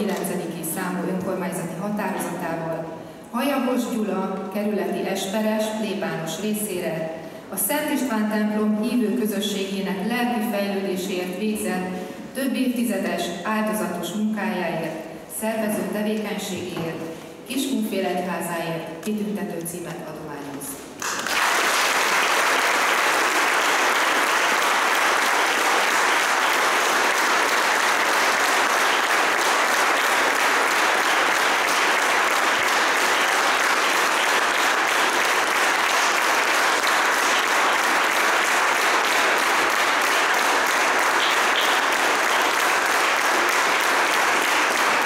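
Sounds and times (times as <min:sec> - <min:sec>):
audience applauding: 0:21.0 - 0:45.0.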